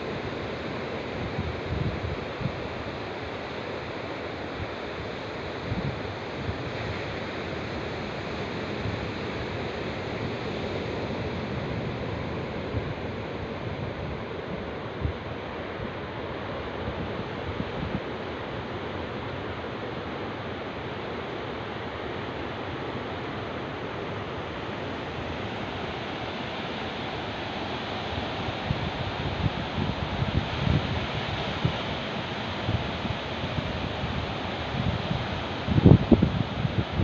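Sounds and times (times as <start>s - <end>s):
sea surf: 0.0s - 37.0s
wind: 0.0s - 37.0s
wind buffeting microphone: 32.6s - 37.0s.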